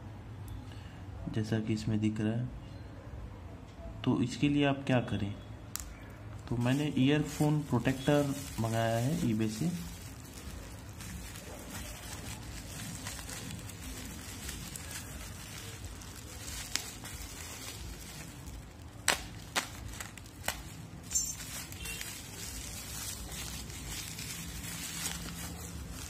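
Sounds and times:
low background hum: 0.0s - 26.0s
crinkling rustle: 6.3s - 26.0s.

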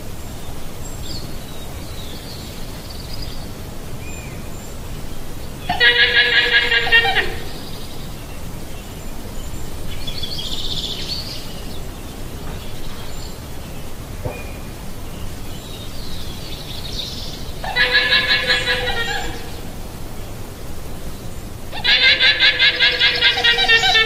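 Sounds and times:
steady background noise: 0.0s - 24.0s
llama calling: 5.7s - 7.6s, 17.6s - 19.7s, 21.7s - 24.0s.

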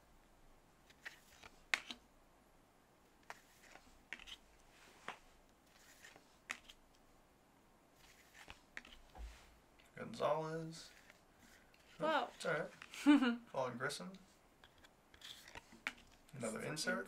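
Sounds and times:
cards flipping and swishing: 0.8s - 2.0s, 3.2s - 6.8s, 8.0s - 9.5s, 10.8s - 13.0s, 14.6s - 16.4s.

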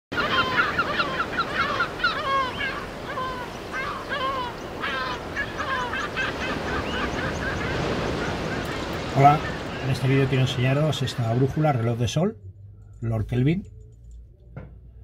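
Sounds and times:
gulls calling: 0.1s - 13.8s.

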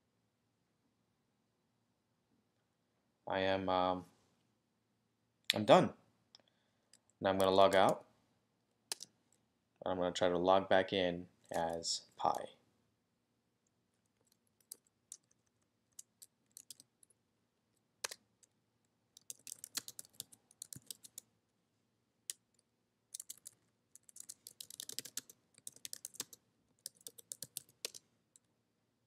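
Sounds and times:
typing on a computer keyboard: 8.9s - 9.1s, 14.1s - 17.2s, 18.0s - 18.6s, 19.2s - 21.3s, 23.1s - 28.5s.

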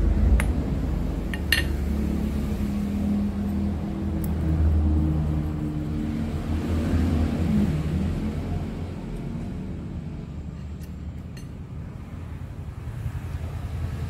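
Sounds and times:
steel parts clinking: 1.3s - 1.8s, 10.6s - 11.6s.

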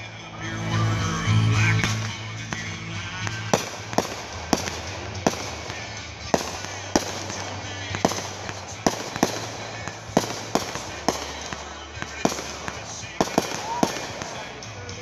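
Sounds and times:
firework bangs: 1.7s - 15.0s.

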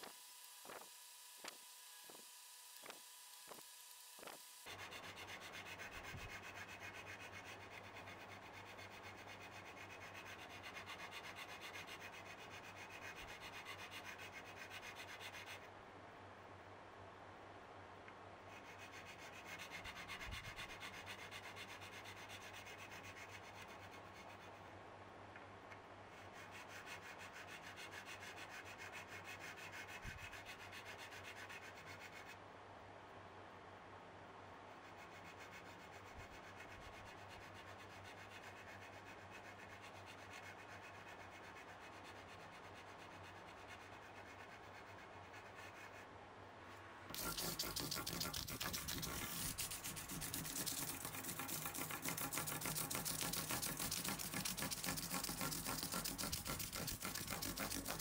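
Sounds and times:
file rasping on metal frets: 47.1s - 58.0s.

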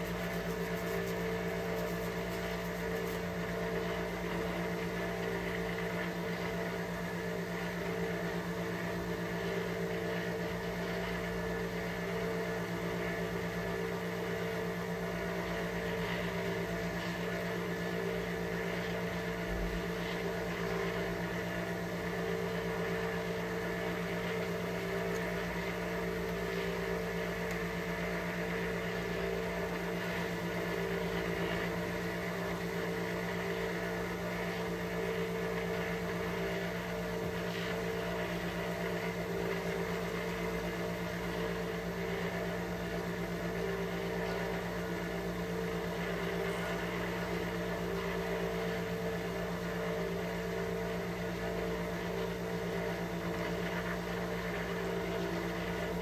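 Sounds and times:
soft handling ticks: 0.0s - 3.3s
mechanical hum: 0.0s - 56.0s.

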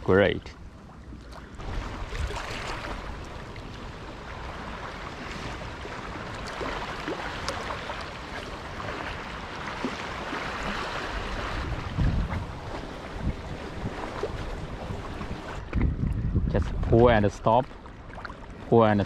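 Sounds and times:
waves lapping on sandy shore: 1.1s - 15.9s.

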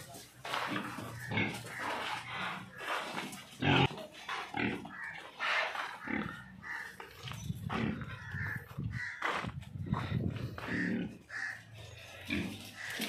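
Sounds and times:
pigs grunting: 0.4s - 13.0s.

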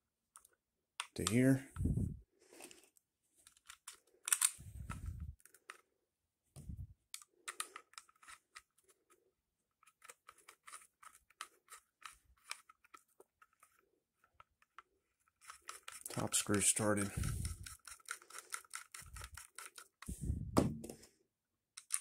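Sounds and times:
holster and screws clicking: 3.4s - 5.8s, 7.2s - 9.2s, 9.8s - 20.1s, 21.8s - 22.0s.

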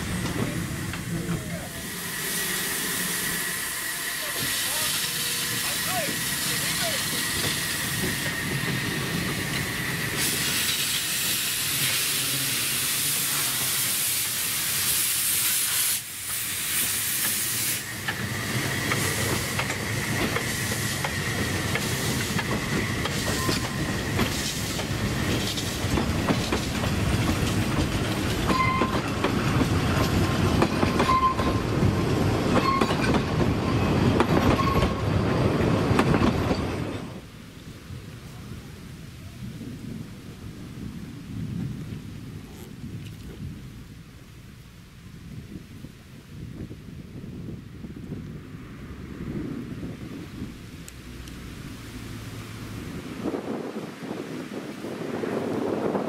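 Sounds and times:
steam hissing: 0.0s - 32.6s
wheels clicking over rail joints: 18.0s - 37.1s
wheel squeals: 28.5s - 29.2s, 30.9s - 31.6s, 32.5s - 35.5s.

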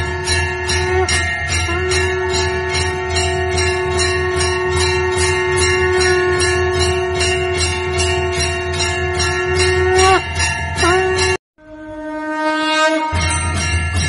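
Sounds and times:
temple bells ringing rapidly: 0.0s - 11.4s, 13.1s - 14.0s
long held note: 0.0s - 13.7s.

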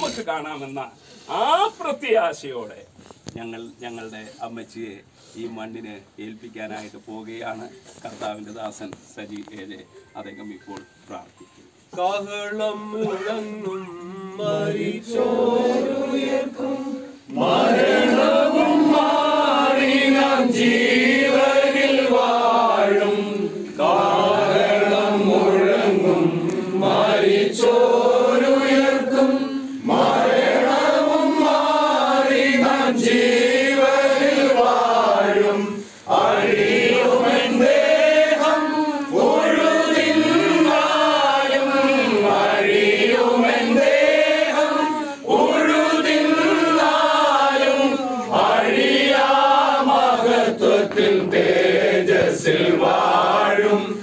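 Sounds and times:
group singing a hymn: 12.0s - 54.0s.

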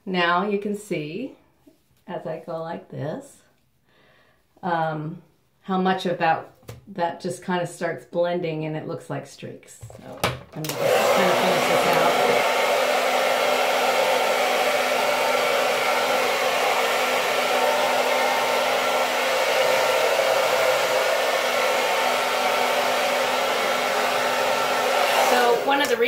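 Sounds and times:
hair dryer blowing air: 10.6s - 26.0s
hair dryer motor hum: 10.6s - 26.0s.

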